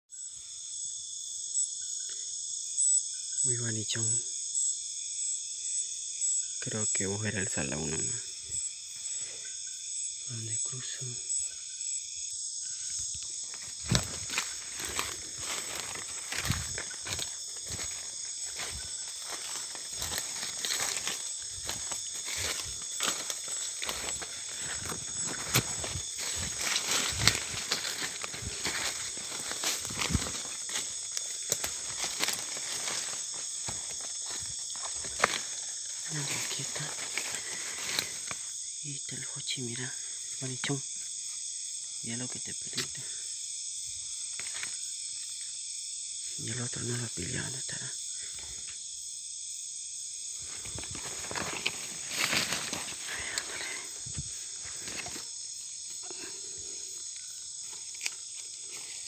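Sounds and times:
night insect chorus: 0.1s - 59.0s
twig snapping: 13.2s - 35.6s, 57.7s - 58.9s
footsteps through dry leaves: 13.4s - 38.4s, 50.5s - 55.2s.

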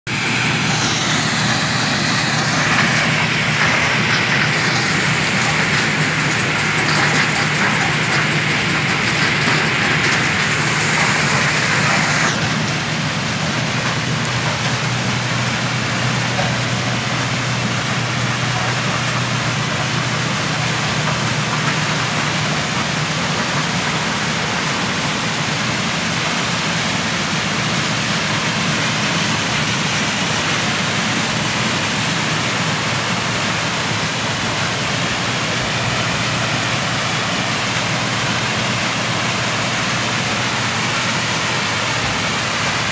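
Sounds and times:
crushed stone pouring off conveyor: 0.2s - 25.4s.

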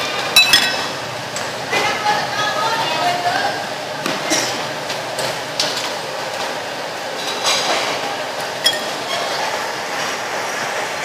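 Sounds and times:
crockery and utensils clinking: 0.4s - 1.1s.

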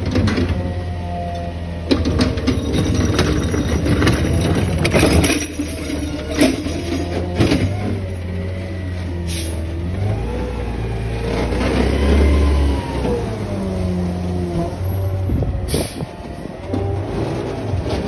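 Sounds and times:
diesel truck engine revving: 3.9s - 18.0s.

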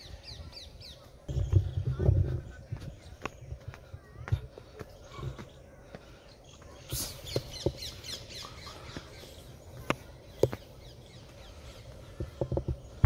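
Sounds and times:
birds chirping and squawking: 0.0s - 13.0s.

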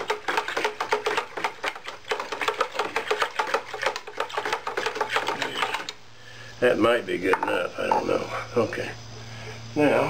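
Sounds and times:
water stirring: 0.0s - 5.9s.

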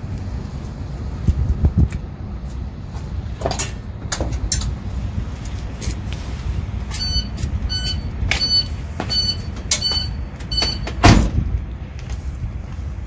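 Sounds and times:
hazard flasher click and beep: 7.0s - 10.9s
loud thump: 11.0s - 11.5s.

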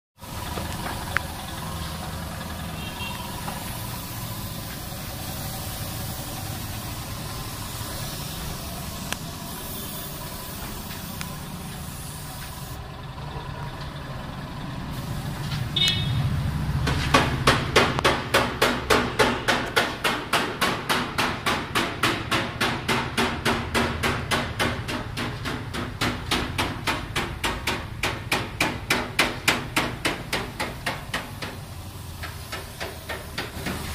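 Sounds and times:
low workshop hum: 0.2s - 33.9s
rapid hammer knocking: 16.8s - 33.9s.

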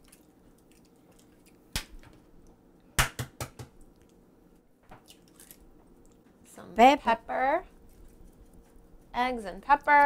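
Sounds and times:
egg knocking on hard edge: 3.0s - 3.8s.

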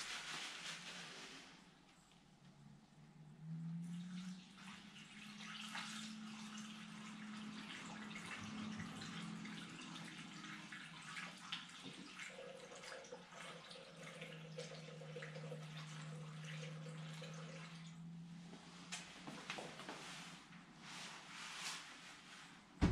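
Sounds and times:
fuel splashing into tank: 3.8s - 18.1s.

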